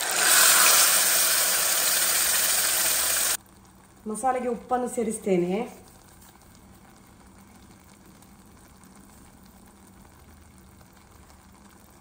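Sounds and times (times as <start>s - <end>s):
paste sizzling in oil: 0.0s - 3.4s.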